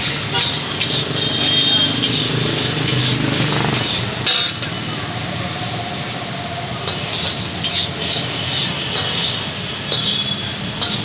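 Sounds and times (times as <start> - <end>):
liver sizzling on a griddle: 6.8 - 11.0.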